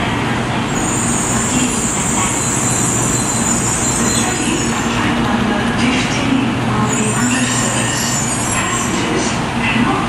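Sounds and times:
train rumbling: 0.2 - 10.0
high-pitched brake squeal: 0.7 - 5.2, 6.8 - 9.3.

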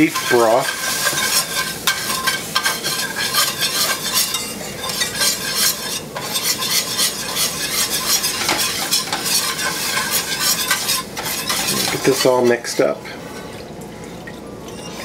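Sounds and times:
whisk scraping metal skillet: 0.0 - 13.6
roux sizzling: 0.0 - 15.0.

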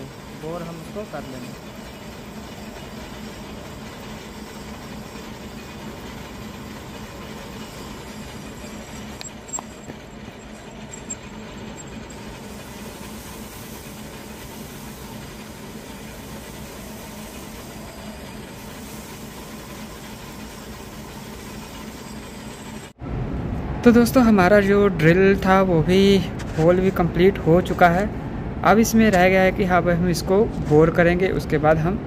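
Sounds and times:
lathe drilling metal: 0.0 - 22.9.

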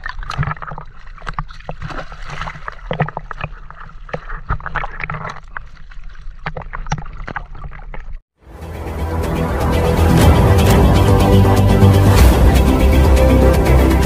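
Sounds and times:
water splashing: 0.0 - 8.2.

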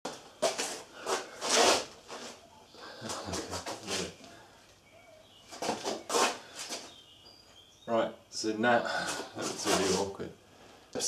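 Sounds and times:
gloved hands rubbing: 3.0 - 4.2, 5.6 - 7.0, 9.1 - 10.1.

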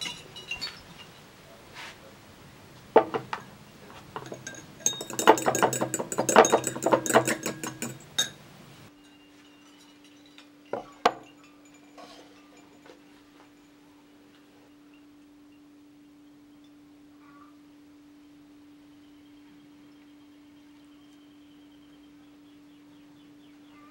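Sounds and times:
short knocks: 3.0 - 3.5
fork clinking against glass bowl: 4.2 - 8.4.

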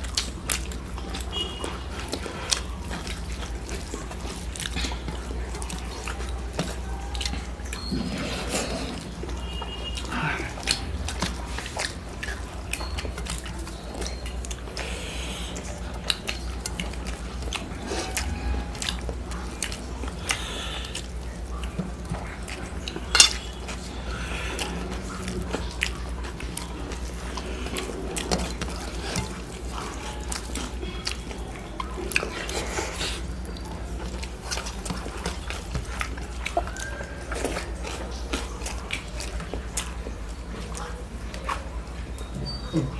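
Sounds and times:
sharp clink on plate: 23.1 - 23.4.

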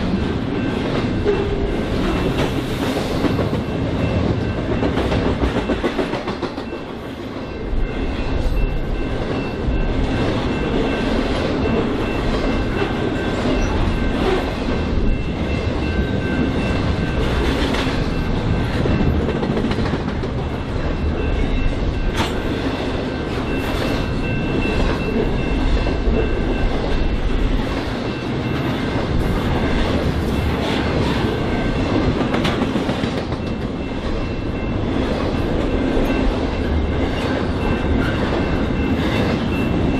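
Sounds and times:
freight train rumbling past: 0.0 - 39.9
wheels clacking over rail joints: 7.7 - 39.9.

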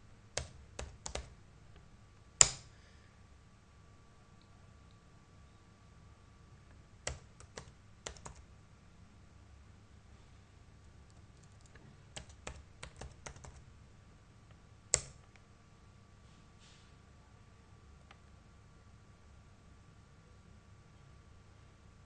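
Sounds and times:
typing on computer keyboard: 0.4 - 1.3, 2.4 - 2.7, 7.1 - 8.4, 11.1 - 13.6, 15.0 - 15.3.

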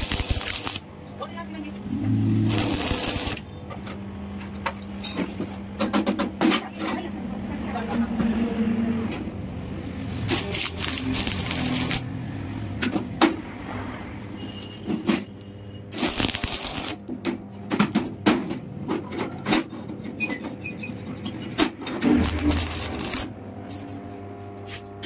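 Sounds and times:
arc welding crackle and sizzle: 0.0 - 3.5, 10.0 - 12.7, 15.9 - 17.2, 22.0 - 24.0.

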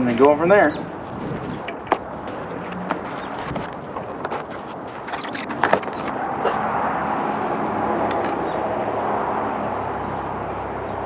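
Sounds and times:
steady rushing noise: 0.9 - 8.1
handlebar stem clicks and rattles: 1.1 - 6.6.

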